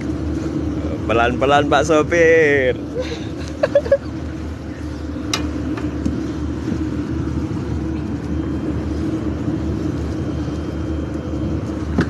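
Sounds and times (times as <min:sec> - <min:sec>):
diesel engine droning: 0:00.0 - 0:12.0.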